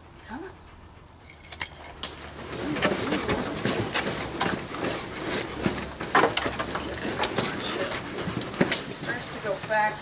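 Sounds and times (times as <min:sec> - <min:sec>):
dog paws on carpet: 0:02.0 - 0:10.0
wooden treadmill clicking and knocking: 0:02.0 - 0:10.0.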